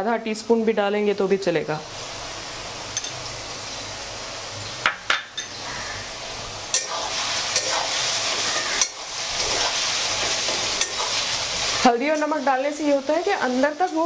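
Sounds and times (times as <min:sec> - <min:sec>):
potatoes sizzling in hot oil: 0:00.0 - 0:14.0
metal spoon clinking on pan: 0:03.0 - 0:03.2, 0:10.8 - 0:11.0.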